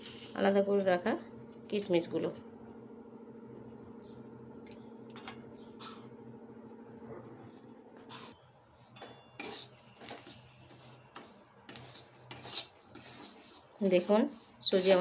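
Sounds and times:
metal spatula scraping a wok: 0:09.3 - 0:15.0.

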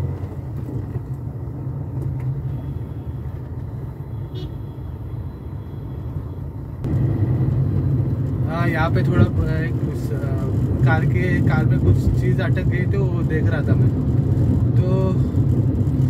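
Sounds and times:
car engine rumble: 0:00.0 - 0:16.0
road noise: 0:00.0 - 0:16.0.

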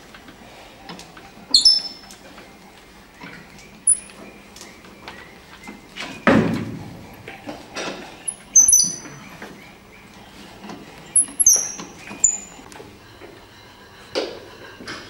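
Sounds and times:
spanner squeaking on bolts: 0:01.5 - 0:02.1, 0:03.8 - 0:04.2, 0:08.2 - 0:09.4, 0:11.1 - 0:12.7.

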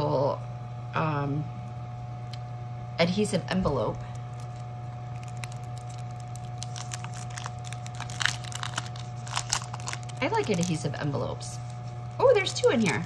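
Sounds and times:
steady low hum: 0:00.0 - 0:13.0
plastic and paper crinkling: 0:04.2 - 0:13.0.

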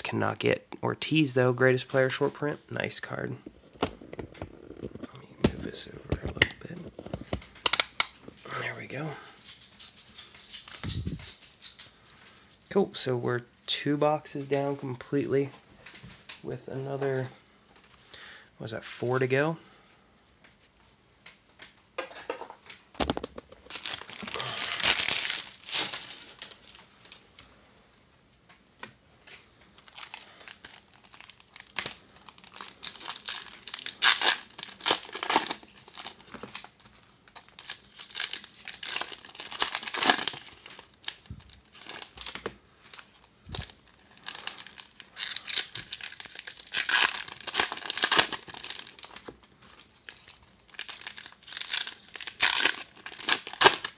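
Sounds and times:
foil wrappers tearing and crinkling: 0:23.0 - 0:27.2, 0:29.8 - 0:53.9.

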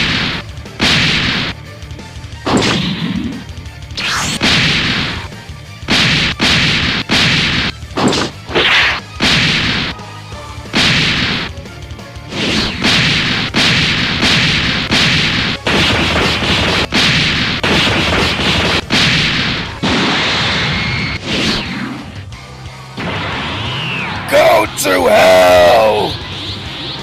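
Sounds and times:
punch impacts: 0:00.0 - 0:01.6, 0:05.9 - 0:09.9, 0:10.7 - 0:11.5, 0:12.3 - 0:20.2
music: 0:00.0 - 0:27.0.

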